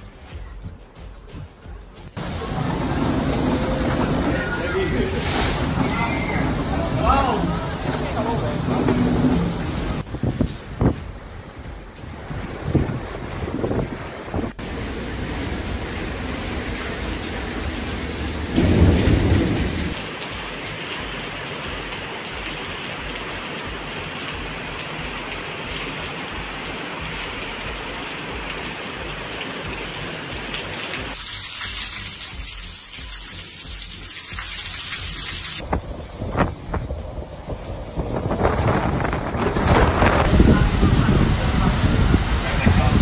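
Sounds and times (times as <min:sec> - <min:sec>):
heavy rain falling: 0:01.6 - 0:43.0
low rumble of thunder: 0:12.2 - 0:20.0, 0:35.6 - 0:43.0.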